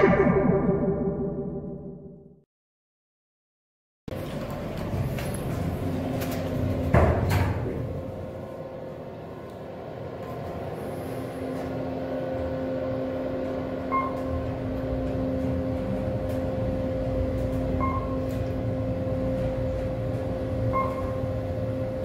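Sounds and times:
elevator drive hum: 4.1s - 22.0s
short beeps: 13.9s - 14.4s, 17.8s - 18.4s, 20.6s - 21.4s.

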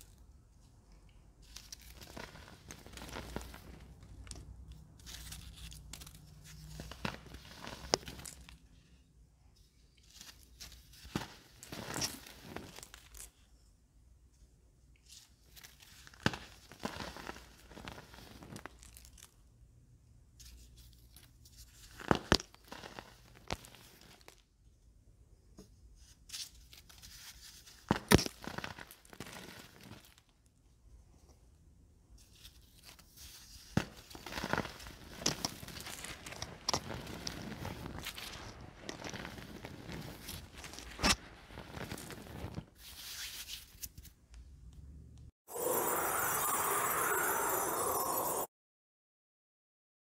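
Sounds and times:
hands crushing baking soda: 1.3s - 8.7s, 10.0s - 13.4s, 15.4s - 19.4s, 20.4s - 24.5s, 26.3s - 30.4s, 32.2s - 44.1s.

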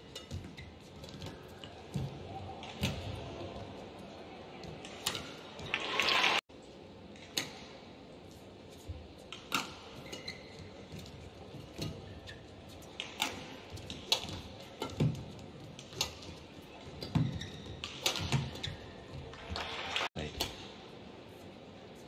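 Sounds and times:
rackets hitting shuttlecock: 0.1s - 3.4s, 12.9s - 16.4s, 17.0s - 19.4s.

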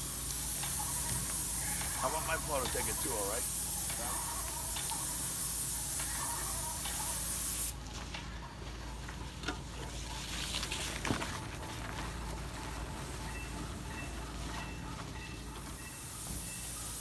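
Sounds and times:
spray gun hissing: 0.0s - 7.8s, 15.9s - 17.0s.

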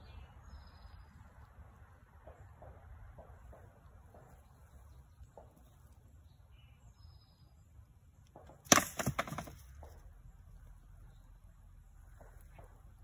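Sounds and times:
wooden log knocking on ground: 8.4s - 10.0s.

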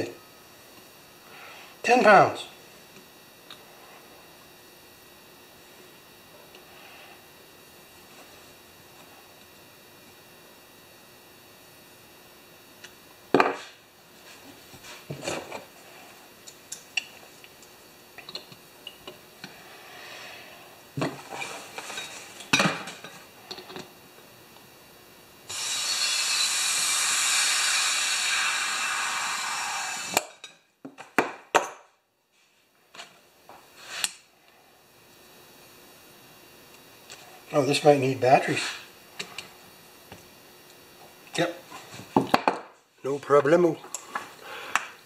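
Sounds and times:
compressed air hissing: 25.5s - 30.2s.

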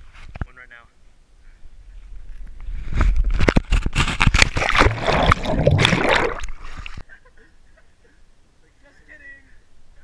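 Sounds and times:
loud splashing and rushing: 4.0s - 7.0s.

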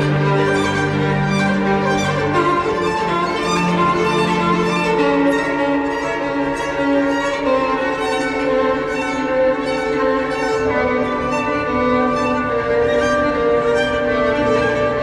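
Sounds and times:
lower strings: 0.0s - 15.0s
violin melody: 0.0s - 15.0s.

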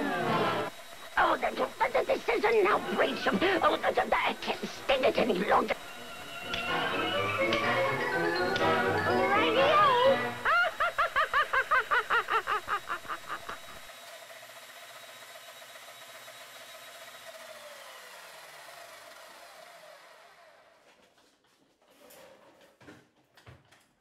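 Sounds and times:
spinning disk and motor whir: 0.0s - 20.8s
cartoon character laughing: 1.3s - 5.8s, 9.2s - 13.9s.

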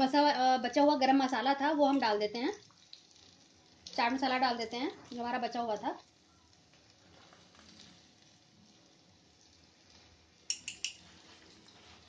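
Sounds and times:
chicken sizzling in a pan: 1.2s - 12.0s.

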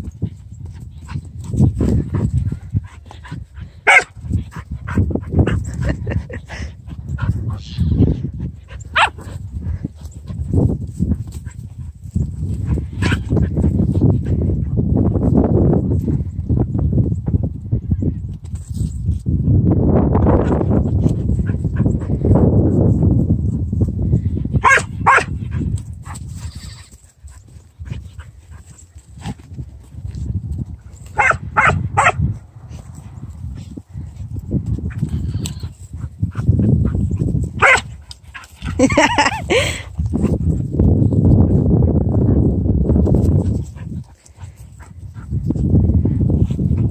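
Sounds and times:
low rumbling and scuffling: 0.0s - 46.9s
dog barking: 3.8s - 4.1s, 9.0s - 9.2s, 24.6s - 25.3s, 31.2s - 32.2s, 37.6s - 37.9s
dog yipping: 3.9s - 4.1s, 24.6s - 25.3s, 37.6s - 37.8s.

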